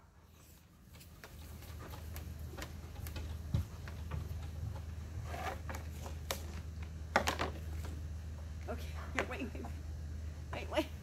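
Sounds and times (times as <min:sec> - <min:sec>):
steady low hum: 0:00.0 - 0:11.0
dog claws clicking on wood: 0:01.0 - 0:05.0.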